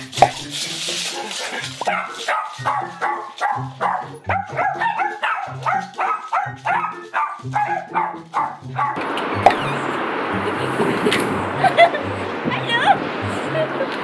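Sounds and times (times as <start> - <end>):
small dog barking: 1.8 - 9.0
steady rushing noise: 9.0 - 14.0.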